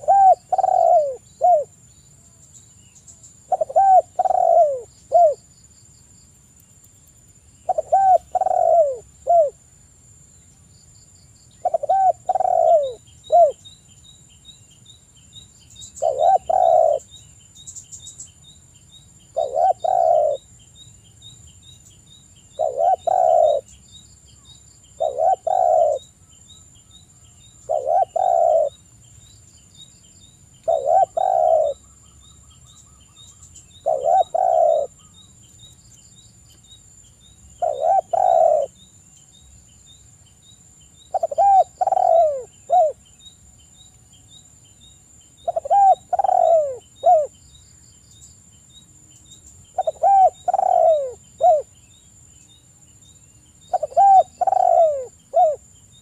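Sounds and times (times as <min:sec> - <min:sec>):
dove cooing: 0:00.0 - 0:01.7, 0:03.5 - 0:05.4, 0:07.7 - 0:09.6, 0:11.6 - 0:13.6, 0:16.0 - 0:17.1, 0:19.3 - 0:20.5, 0:22.6 - 0:23.7, 0:25.0 - 0:26.1, 0:27.6 - 0:28.8, 0:30.6 - 0:31.8, 0:33.7 - 0:35.1, 0:37.6 - 0:38.8, 0:41.1 - 0:43.0, 0:45.4 - 0:47.3, 0:49.8 - 0:51.7, 0:53.7 - 0:55.6.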